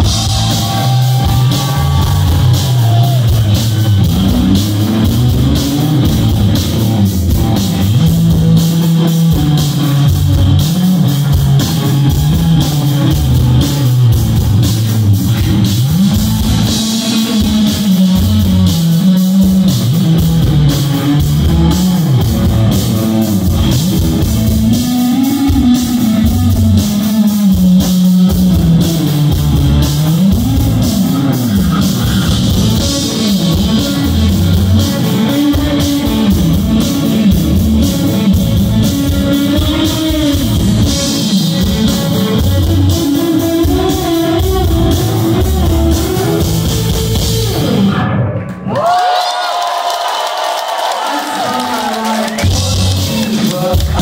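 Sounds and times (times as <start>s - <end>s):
bass guitar: 0.0s - 49.5s, 50.8s - 54.0s
electric guitars: 0.0s - 50.0s, 50.6s - 54.0s
drum kit: 0.0s - 54.0s.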